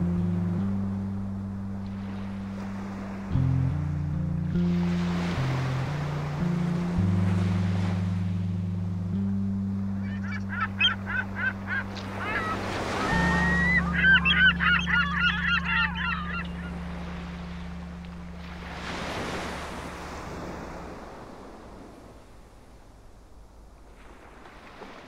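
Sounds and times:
sustained music chords: 0.0 - 20.1
surf washing: 0.0 - 25.0
gulls calling: 9.8 - 20.4.

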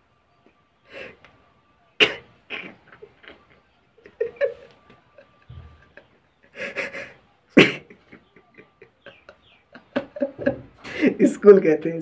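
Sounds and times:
catches of breath: 0.9 - 1.4, 10.8 - 11.2
man laughing breathily: 3.0 - 11.2.

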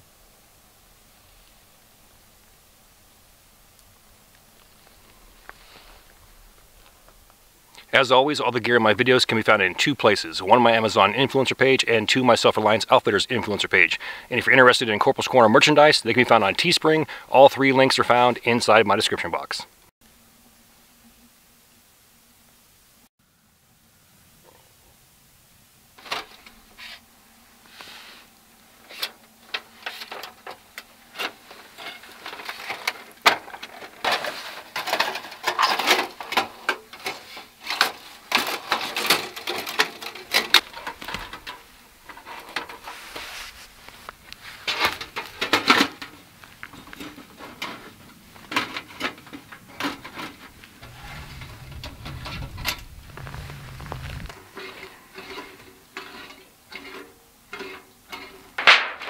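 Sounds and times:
metal panels clinking and rattling: 31.2 - 42.8
low rumble: 50.5 - 54.4.

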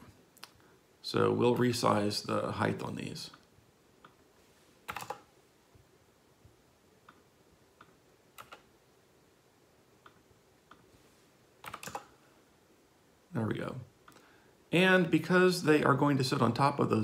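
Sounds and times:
computer keyboard keystrokes: 4.9 - 5.3, 8.4 - 8.7, 11.6 - 12.1.

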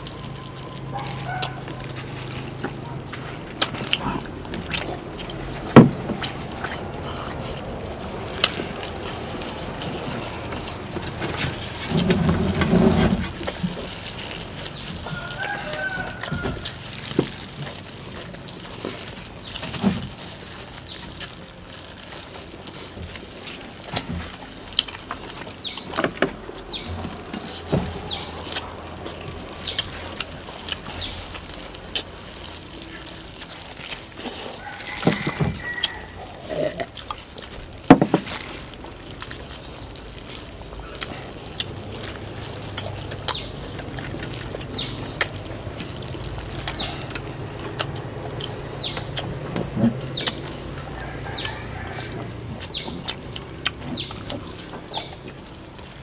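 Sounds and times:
chickens clucking: 0.0 - 56.0
rooster crowing: 15.0 - 17.0, 34.4 - 36.7, 50.7 - 52.8.

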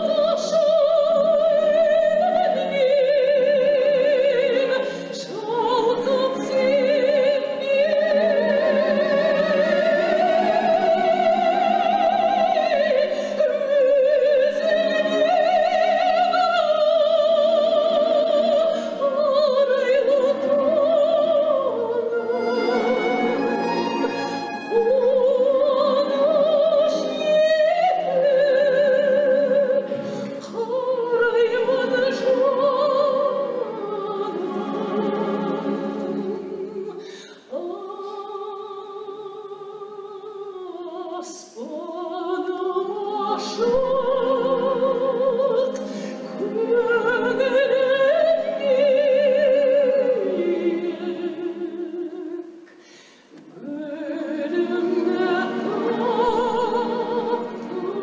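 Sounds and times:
classical instrumental accompaniment: 0.0 - 39.0, 40.6 - 52.6, 53.3 - 58.0
operatic singing: 0.0 - 52.6, 53.3 - 58.0
singer breathing: 37.0 - 37.5, 45.8 - 46.3, 52.7 - 53.4.

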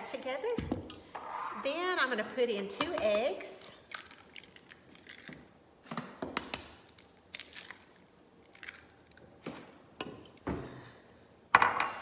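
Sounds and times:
eggshells cracking: 3.9 - 5.6, 6.4 - 9.2.

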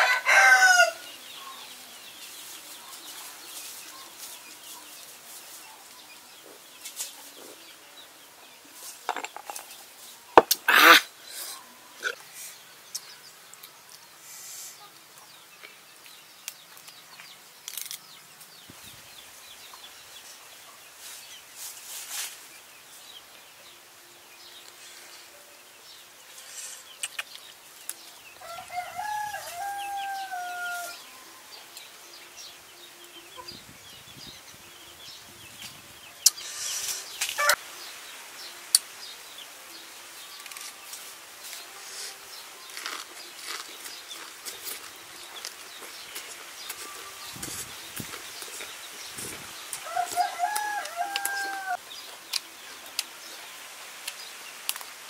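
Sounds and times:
rooster crowing: 0.0 - 1.1, 28.4 - 31.1, 49.8 - 51.8.

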